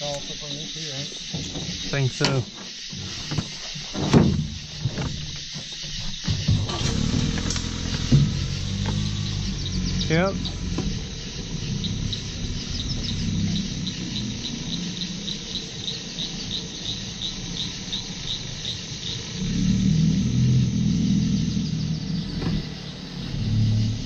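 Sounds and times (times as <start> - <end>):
insects chirping: 0.0 - 24.0
low rumble: 7.1 - 16.5.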